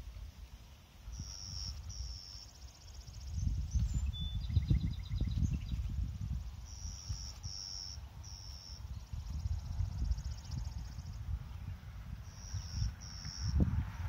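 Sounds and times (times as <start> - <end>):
trilling insect-like calls: 1.0 - 4.7, 6.5 - 11.3, 12.2 - 13.6
wind buffeting microphone: 2.9 - 14.0.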